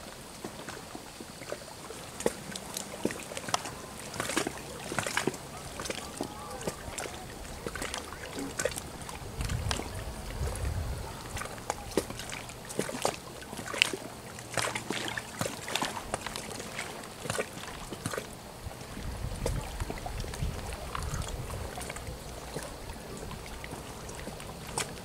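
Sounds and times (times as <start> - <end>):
small waves lapping: 0.0 - 25.0
wind on microphone: 5.6 - 12.6, 18.6 - 25.0.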